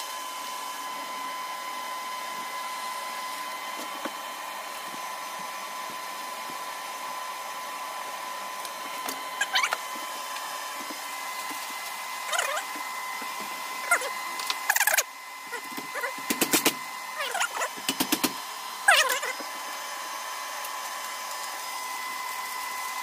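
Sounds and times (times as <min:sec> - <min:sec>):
welding arc hiss: 0:08.7 - 0:18.4
short squeaky sounds: 0:09.4 - 0:09.8, 0:12.3 - 0:12.7.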